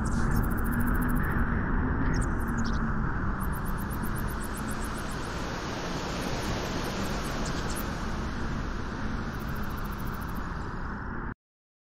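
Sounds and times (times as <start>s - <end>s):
wind blowing: 3.9s - 10.9s.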